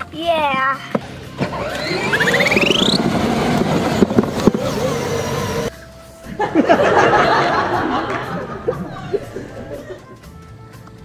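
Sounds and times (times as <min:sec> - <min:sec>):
short sliding tones: 0:01.4 - 0:03.6
toy car motor and wheels: 0:01.4 - 0:05.7.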